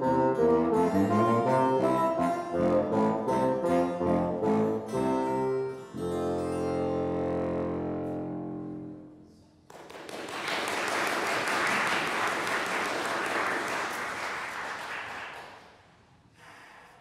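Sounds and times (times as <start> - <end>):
bassoon and harpsichord chord: 0.0 - 9.2
audience applause: 9.7 - 15.8.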